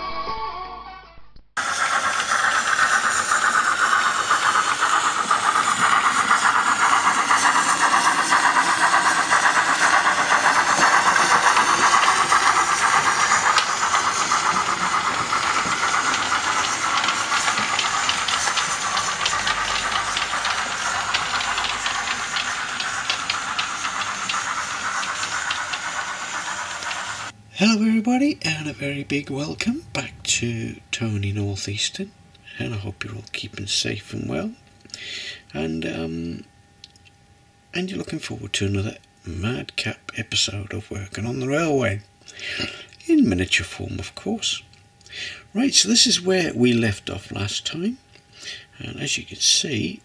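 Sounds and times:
wheels clicking over rail joints: 0:01.6 - 0:27.3
model steam locomotive hiss: 0:01.6 - 0:36.5, 0:39.6 - 0:50.0.

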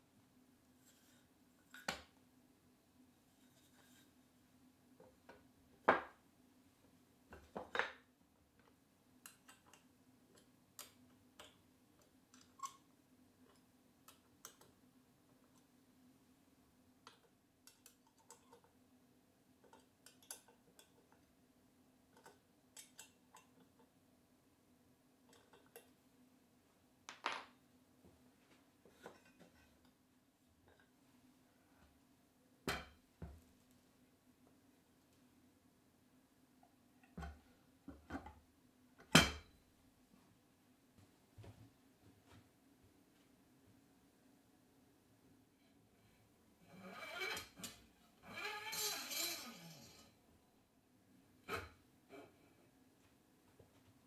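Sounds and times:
wooden blocks knocking: 0:27.1 - 0:27.5.

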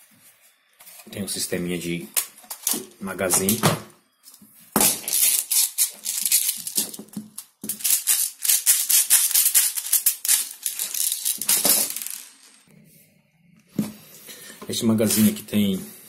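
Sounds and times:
plastic pellets rattling in a tube: 0:05.0 - 0:12.7.

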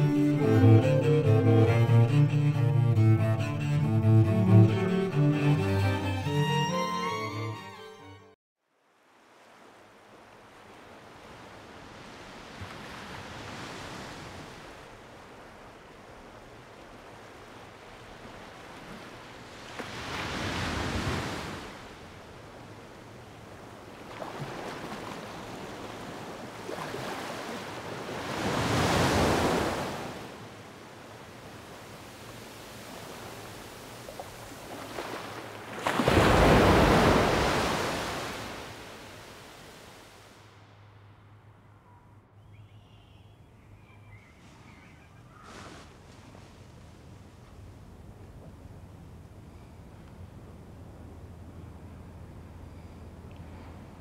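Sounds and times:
surf-like rushing noise: 0:31.4 - 0:40.7.

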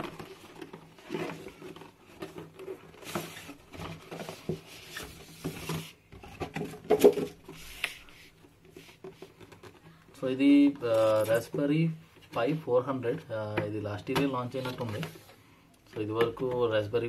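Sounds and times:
cardboard rubbing and scraping: 0:00.0 - 0:06.0.

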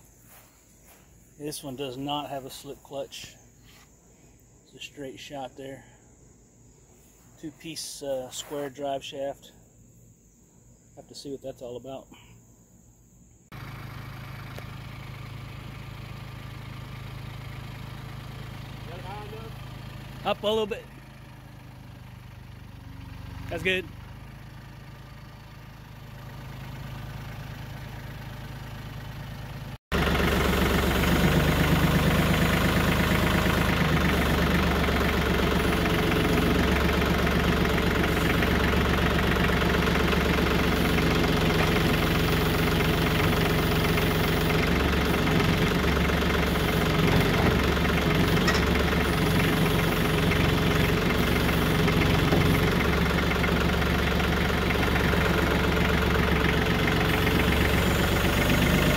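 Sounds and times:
tractor diesel engine running: 0:13.5 - 0:58.9.

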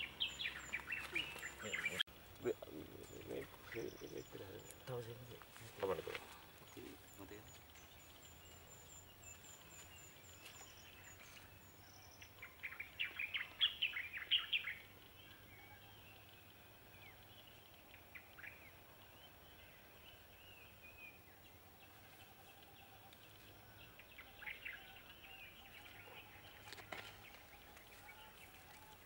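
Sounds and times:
faint outdoor background noise: 0:00.0 - 0:29.0.

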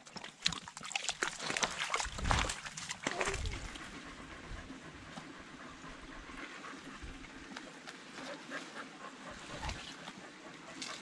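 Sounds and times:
dog panting: 0:03.2 - 0:11.0.

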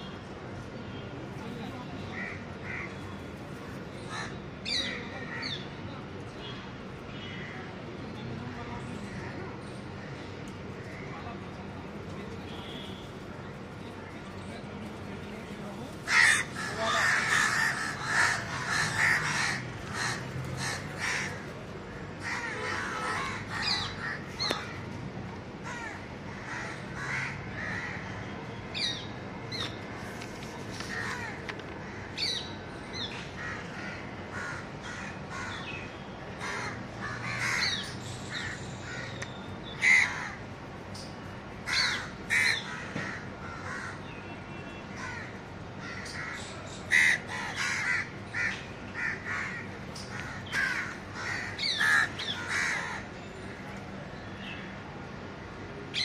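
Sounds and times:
crows cawing: 0:02.2 - 0:02.9, 0:04.1 - 0:05.5, 0:16.0 - 0:24.8, 0:25.6 - 0:28.3, 0:30.9 - 0:32.4, 0:33.4 - 0:35.7, 0:36.4 - 0:39.2, 0:39.8 - 0:40.4, 0:41.6 - 0:44.0, 0:44.9 - 0:53.1.

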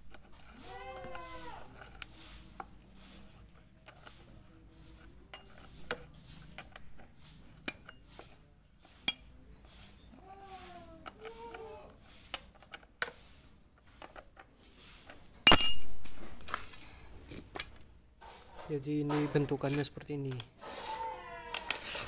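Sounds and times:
wavering meow-like calls: 0:00.6 - 0:01.7, 0:10.1 - 0:12.0, 0:20.7 - 0:22.0
socket wrench clicking and scraping: 0:05.0 - 0:08.4, 0:12.3 - 0:13.2, 0:21.5 - 0:22.0
ringing metal clank: 0:09.1 - 0:09.7, 0:15.5 - 0:16.0.

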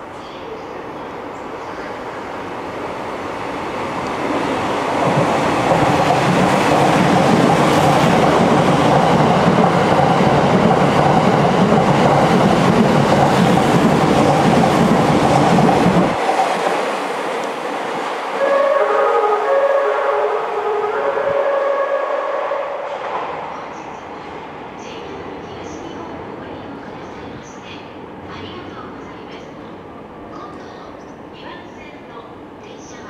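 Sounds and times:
train wheels on rail: 0:00.0 - 0:33.0
train horn melody: 0:18.4 - 0:23.0.

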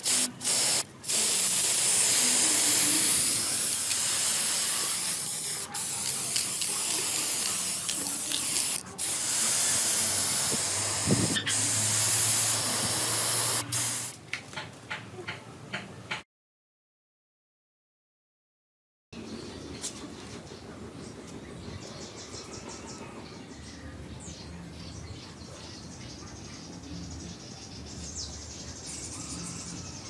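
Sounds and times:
spray can hissing: 0:00.0 - 0:14.2.

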